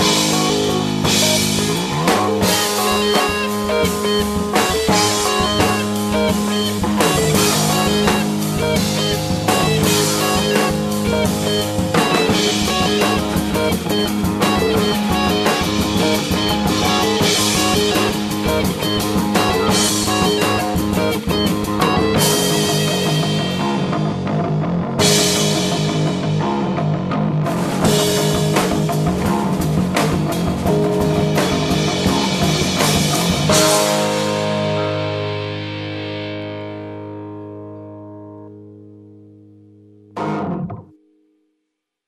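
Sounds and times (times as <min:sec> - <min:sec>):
instrumental rock band playing: 0:00.0 - 0:41.0.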